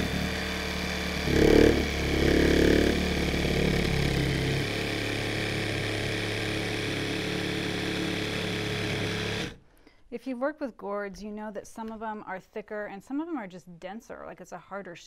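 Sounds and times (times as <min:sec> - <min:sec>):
jigsaw cutting gourd shell: 0:00.0 - 0:09.6.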